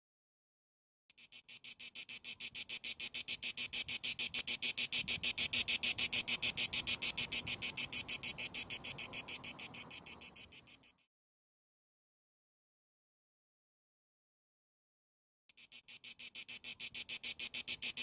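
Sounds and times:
cicada buzzing: 1.1 - 11.1, 15.6 - 18.0.

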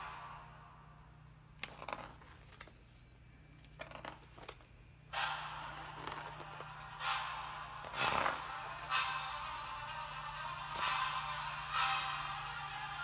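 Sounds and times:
pages rustling as turned: 1.6 - 3.0, 3.7 - 4.8, 5.7 - 6.8.

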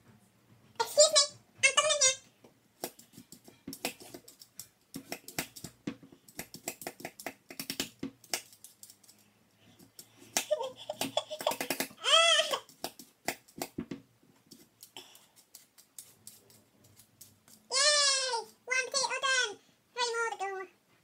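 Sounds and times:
vegetable peeler scraping potato: 2.8 - 9.2, 14.5 - 18.6.

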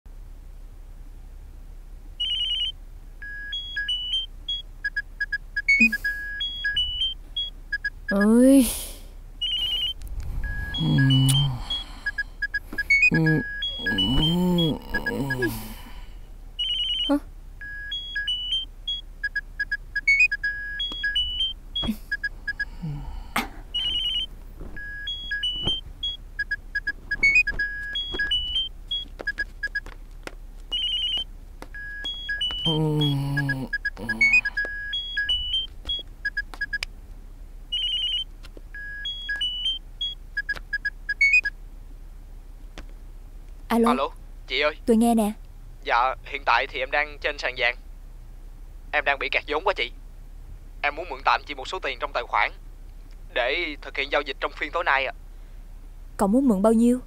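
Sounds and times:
mobile phone ringtone melody: 2.2 - 4.2, 5.6 - 7.2, 9.4 - 15.5, 16.6 - 19.0, 23.8 - 26.2, 26.8 - 29.8, 30.7 - 31.2, 31.8 - 36.0, 37.8 - 38.2
brief low vocal sound: 10.3 - 12.2, 13.1 - 16.1, 32.7 - 34.6.

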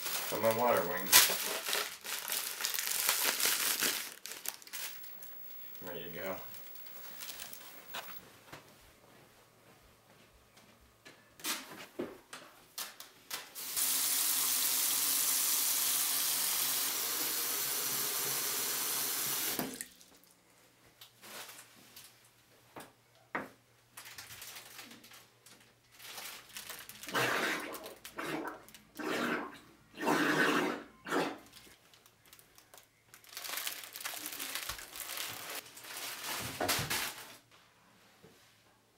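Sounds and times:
footsteps: 4.4 - 12.8.

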